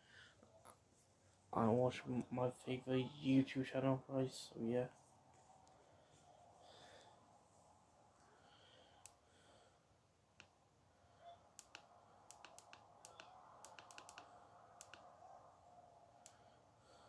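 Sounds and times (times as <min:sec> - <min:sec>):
light sharp clicks: 0:11.6 - 0:15.1.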